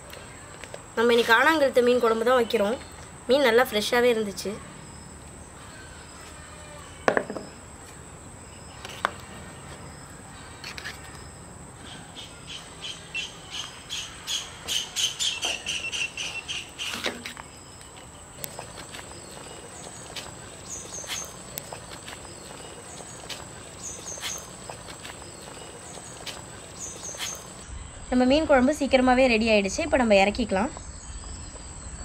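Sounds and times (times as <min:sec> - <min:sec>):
insect chirping: 0:00.1 - 0:32.0.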